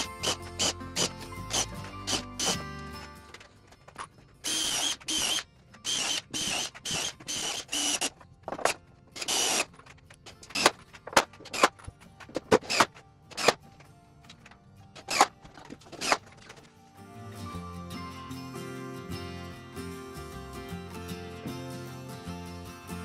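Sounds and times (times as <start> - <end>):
cordless drill whining: 0.0 - 3.1, 4.4 - 10.8
sharp clicks and knocks: 3.3 - 16.7.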